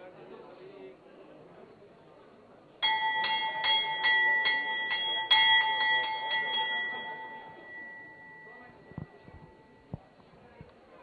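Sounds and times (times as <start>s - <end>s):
metal bell ringing: 2.8s - 9.9s.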